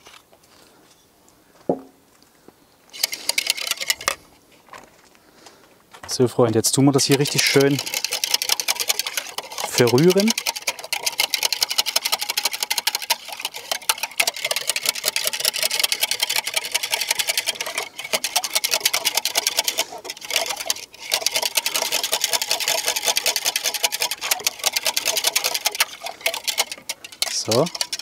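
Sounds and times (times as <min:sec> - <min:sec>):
metal utensil clinking in glass jug: 0:06.9 - 0:11.6, 0:17.5 - 0:28.0.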